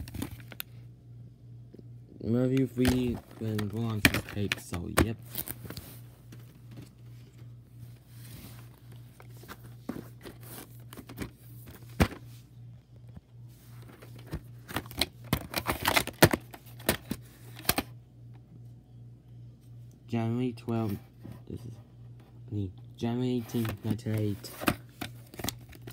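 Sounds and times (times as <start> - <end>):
low steady hum: 0.0 - 25.9
plastic case rustling: 2.6 - 12.5, 13.7 - 17.9, 23.4 - 25.9.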